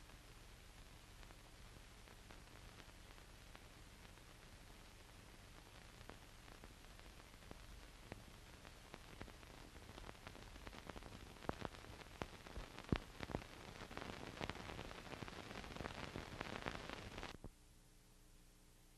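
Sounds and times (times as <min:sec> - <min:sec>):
film crackles and pops: 0:00.0 - 0:17.6
film hiss: 0:00.0 - 0:18.9.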